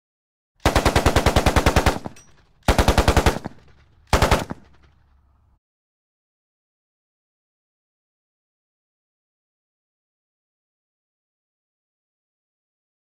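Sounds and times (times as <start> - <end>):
machine gun bursts: 0.6 - 5.0.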